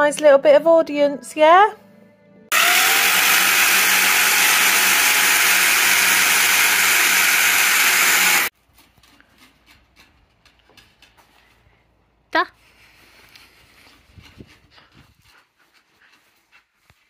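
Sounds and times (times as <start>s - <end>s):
power drill boring into brick: 2.5s - 8.5s.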